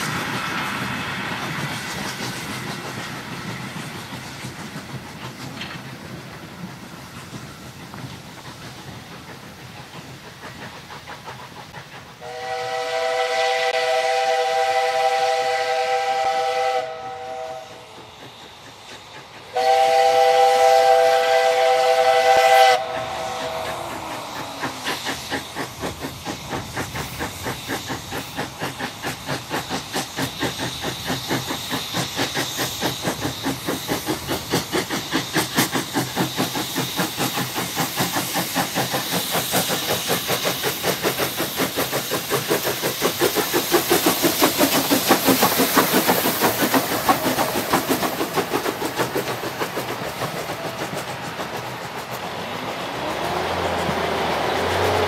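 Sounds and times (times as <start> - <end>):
steam locomotive chuffing: 0.0 - 55.0
steam whistle blasts: 12.2 - 17.9, 19.5 - 24.2.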